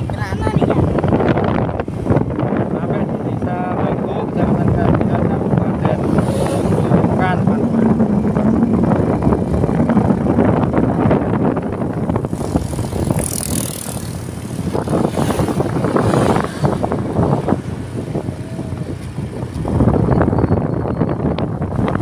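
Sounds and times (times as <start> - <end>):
wind buffeting microphone: 0.0 - 22.0
motorcycle engine running: 5.9 - 22.0.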